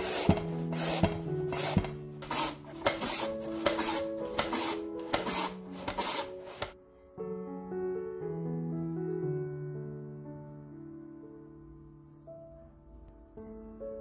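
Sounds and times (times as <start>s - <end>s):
radish scraping on mandoline blades: 0.0s - 6.8s
piano music: 0.0s - 14.0s.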